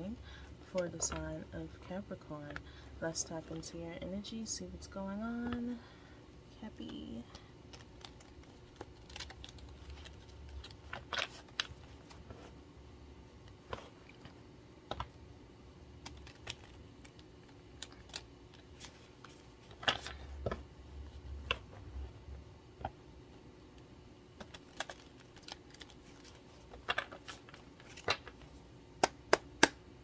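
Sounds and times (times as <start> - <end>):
cards being shuffled by hand: 6.8 - 12.6, 15.9 - 22.0, 24.3 - 29.8.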